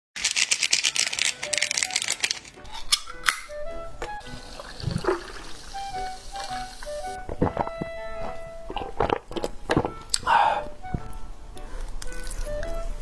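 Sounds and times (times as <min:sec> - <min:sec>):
music with plucked notes: 0:02.6 - 0:13.0
drink poured into a mug: 0:04.2 - 0:06.8.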